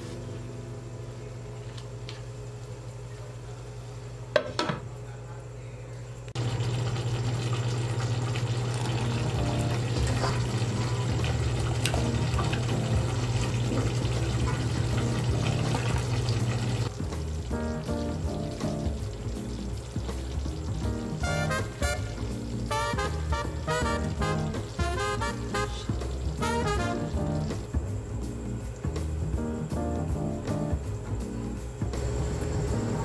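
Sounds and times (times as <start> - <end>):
steady low hum: 0.0 - 33.0
spaghetti bubbling in a pot: 6.4 - 27.6.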